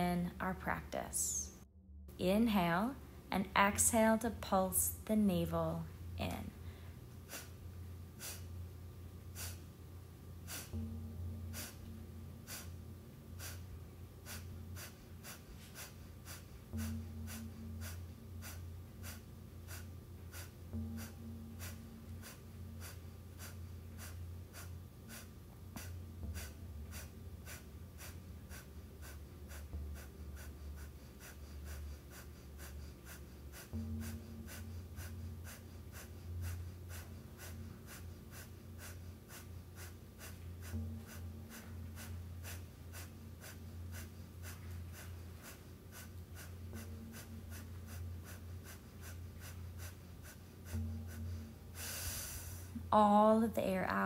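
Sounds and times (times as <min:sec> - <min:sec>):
forceful nasal exhales: 0:32.6 - 0:52.8.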